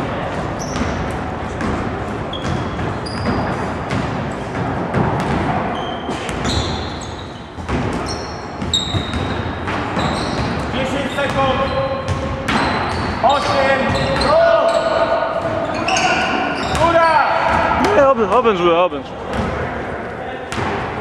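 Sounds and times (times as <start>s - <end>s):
sneaker squeaks: 0.2s - 4.1s, 5.2s - 17.9s.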